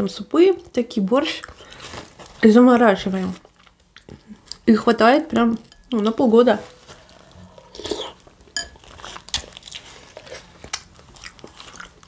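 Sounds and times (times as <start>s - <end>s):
person chewing crunchy food: 6.8s - 12.0s.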